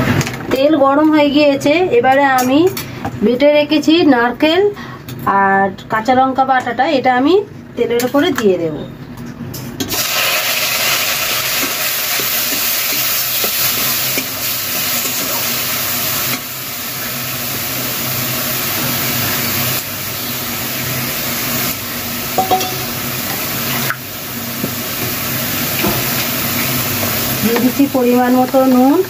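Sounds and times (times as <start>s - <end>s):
paste sizzling in hot oil: 9.9s - 28.9s.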